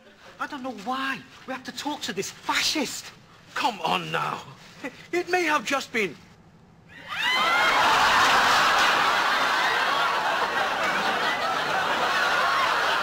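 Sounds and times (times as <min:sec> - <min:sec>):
audience laughing: 0:07.4 - 0:13.0.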